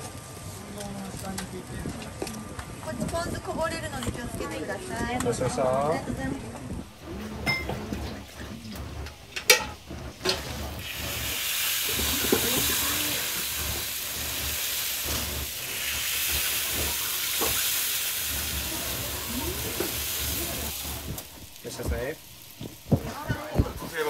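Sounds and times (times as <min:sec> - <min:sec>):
batter sizzling in hot pan: 0:06.8 - 0:24.0.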